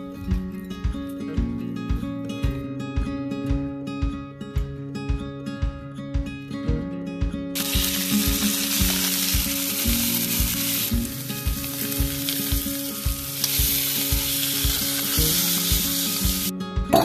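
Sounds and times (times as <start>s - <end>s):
meat sizzling in a frying pan: 7.6s - 16.5s.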